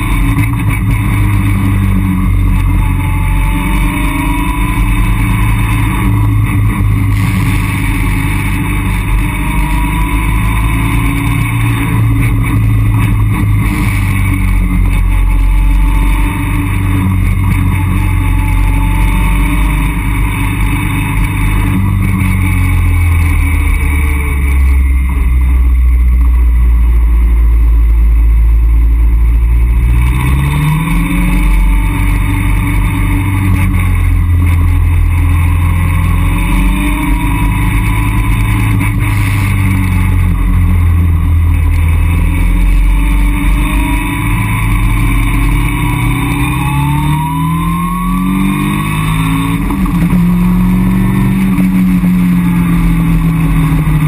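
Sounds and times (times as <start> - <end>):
car engine revving: 0.0 - 54.0
road and wind rush: 0.0 - 54.0.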